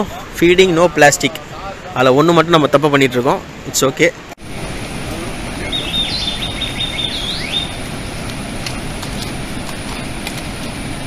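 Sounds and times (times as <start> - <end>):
heavy falling water: 3.1 - 11.0
bird chirping: 5.6 - 7.9.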